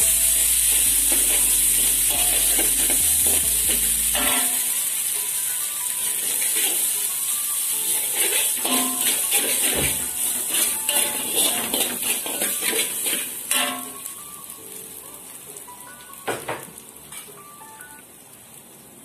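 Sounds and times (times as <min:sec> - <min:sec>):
food sizzling in hot oil: 0:00.0 - 0:19.0
metal spatula scraping pan: 0:00.6 - 0:04.7, 0:06.2 - 0:07.0, 0:07.9 - 0:14.0.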